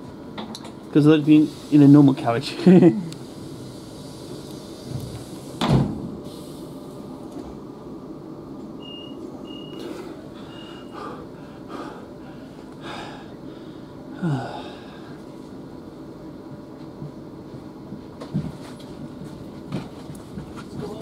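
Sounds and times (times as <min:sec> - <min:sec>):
train cabin hum: 0:03.0 - 0:21.0
loud thump: 0:05.6 - 0:06.0
short high beeps: 0:08.8 - 0:09.9.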